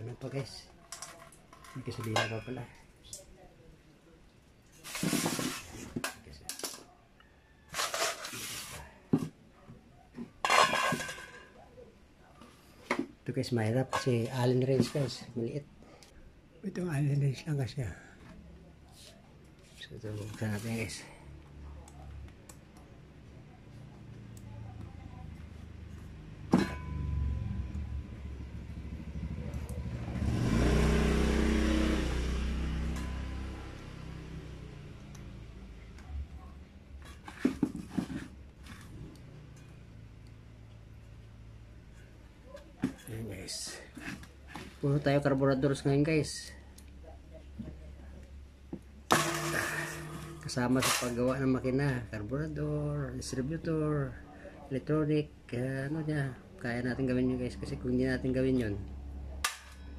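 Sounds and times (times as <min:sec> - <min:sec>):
scraping rustle: 0:04.7 - 0:06.0, 0:07.7 - 0:09.0
motor vehicle passing: 0:25.2 - 0:36.6
metal scraping in steel basin: 0:49.1 - 0:51.4.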